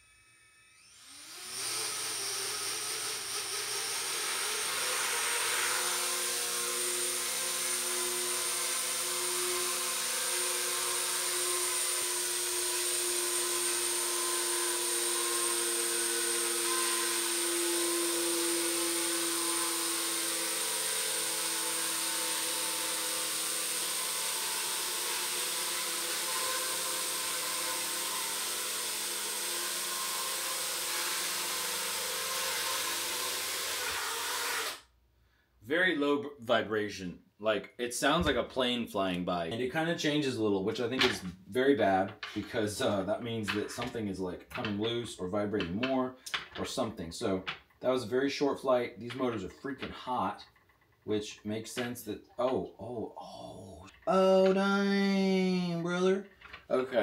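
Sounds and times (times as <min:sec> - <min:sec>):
quadcopter motors whining: 0:00.0 - 0:13.8.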